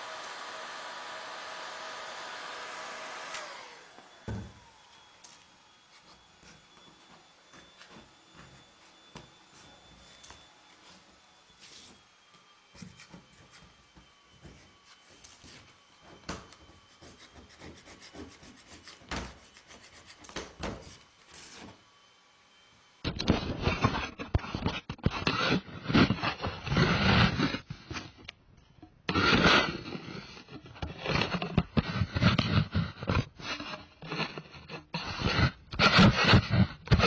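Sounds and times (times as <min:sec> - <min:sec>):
metal scraper scraping paint off metal: 0:23.1 - 0:28.1, 0:29.1 - 0:37.0.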